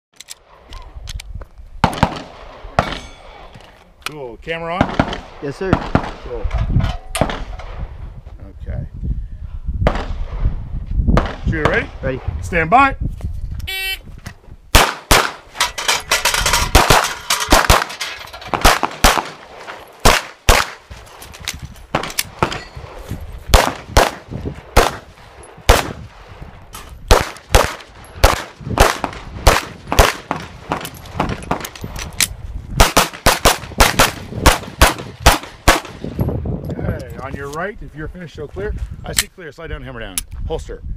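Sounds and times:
rapid pistol shots: 4.8 - 6.3, 14.7 - 15.5, 16.7 - 20.8, 23.5 - 25.1, 25.7 - 26.0, 27.1 - 31.6, 32.8 - 36.0
steel targets clanging: 15.4 - 18.6.

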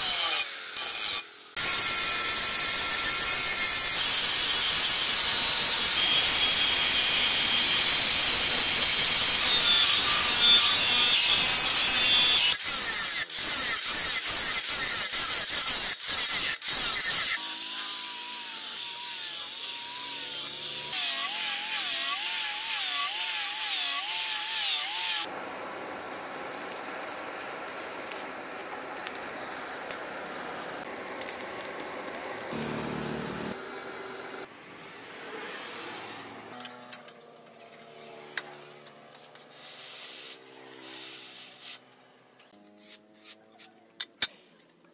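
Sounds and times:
angle grinder grinding steel: 0.0 - 25.3, 26.1 - 34.5
fire crackling and popping: 26.6 - 30.1, 30.8 - 32.6.

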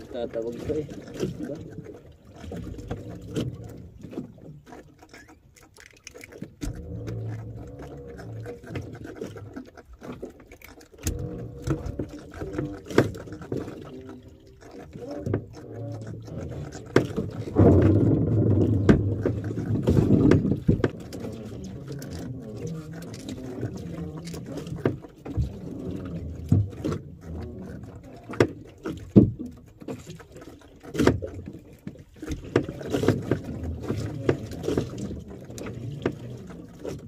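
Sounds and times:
fishing line hauled in: 0.0 - 37.0
gear knocking on wooden hull: 14.7 - 22.3.

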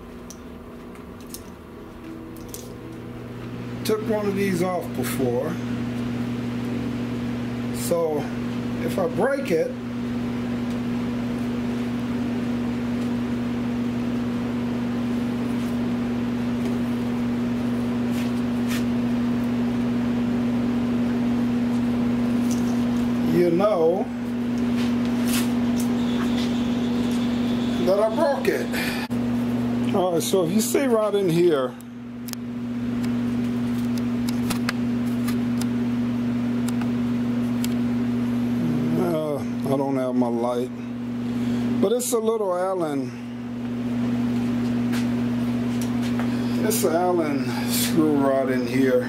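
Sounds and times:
low machine hum: 0.0 - 49.0.

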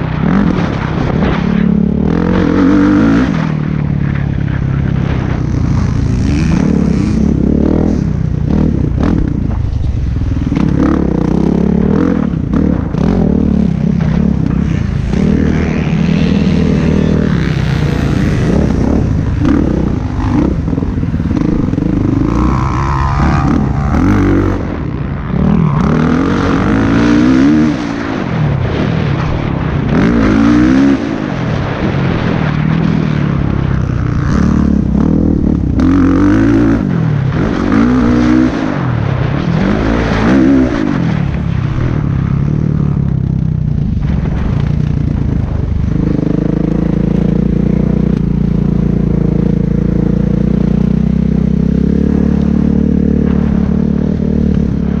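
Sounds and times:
motocross engine revving: 0.1 - 9.6, 10.4 - 29.2.

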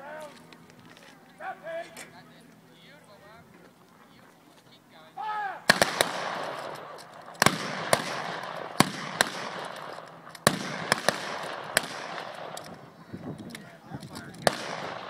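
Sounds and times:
person shouting command: 1.4 - 2.0, 5.1 - 5.7
rifle shots echoing: 5.6 - 12.8, 14.4 - 15.0.

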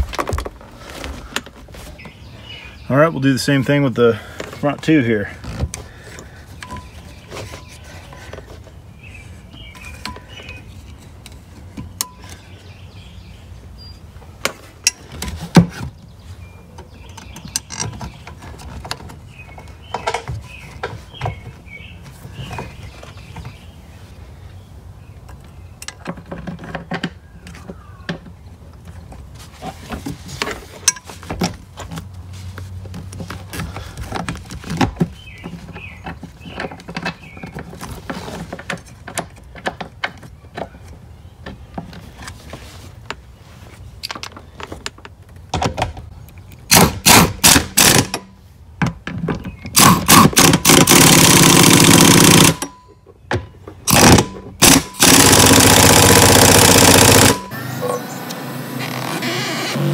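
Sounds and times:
pneumatic impact wrench: 46.7 - 48.2, 49.8 - 52.7, 53.9 - 59.9.

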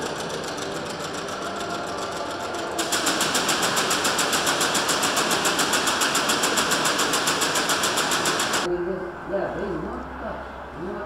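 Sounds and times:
rapid mechanical clatter: 0.0 - 8.7.

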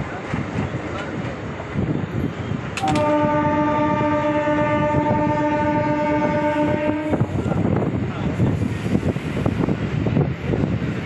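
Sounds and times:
moving train running noise: 0.0 - 11.0
train horn: 2.8 - 7.4.

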